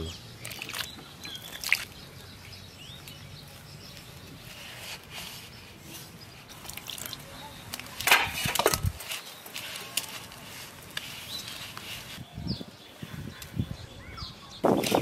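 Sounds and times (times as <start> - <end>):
hands mixing dough in metal bowl: 0.4 - 2.0, 2.8 - 12.2.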